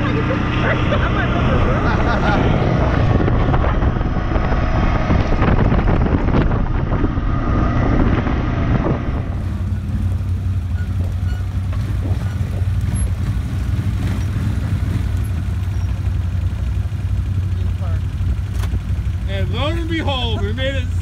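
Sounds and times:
atv driving on gravel: 0.0s - 21.0s
wind noise on microphone: 2.6s - 10.0s, 10.8s - 13.2s
atv idling: 9.5s - 21.0s.

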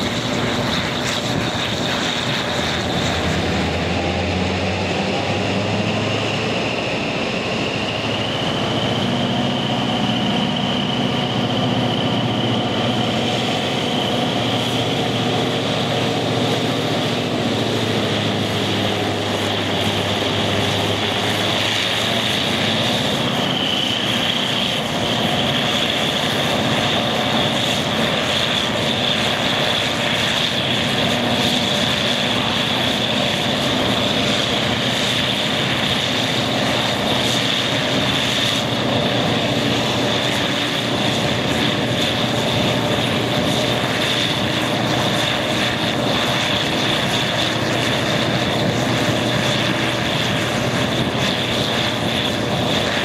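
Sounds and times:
diesel locomotive engine: 0.0s - 53.0s
high engine whine: 0.0s - 53.0s.

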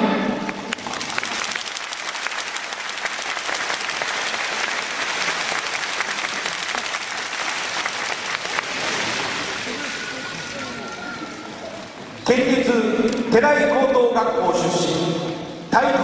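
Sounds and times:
audience applauding: 0.5s - 11.6s.

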